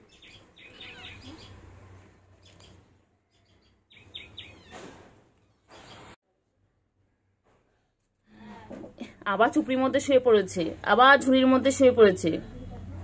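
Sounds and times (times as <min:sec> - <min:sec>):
small birds chirping: 0:00.0 - 0:06.2.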